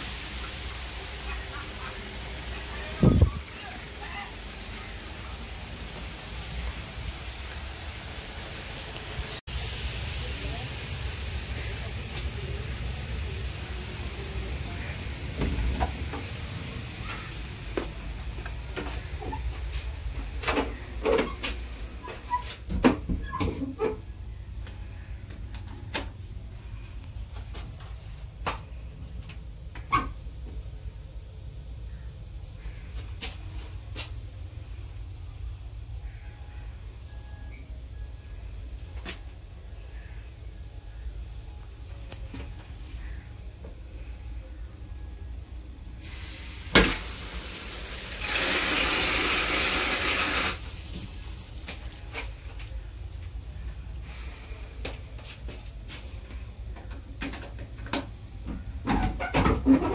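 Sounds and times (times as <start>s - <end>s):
railway carriage rumble: 0.0s - 48.2s
toilet water rushing: 46.0s - 52.2s.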